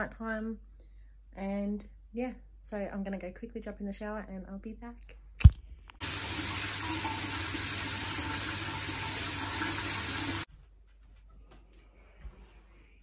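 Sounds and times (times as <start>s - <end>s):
shower water running: 6.0s - 10.5s.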